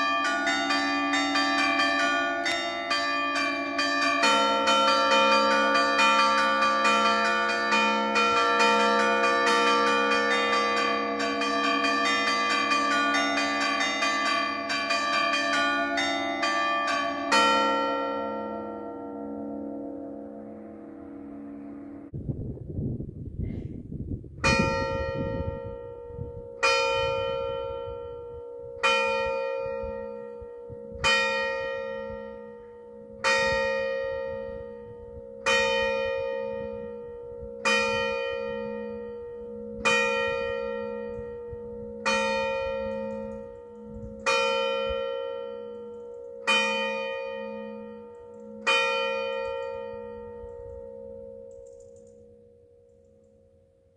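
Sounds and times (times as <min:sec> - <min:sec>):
church bell tolling: 0:00.0 - 0:22.2, 0:24.4 - 0:53.9
low rumble: 0:22.0 - 0:24.5.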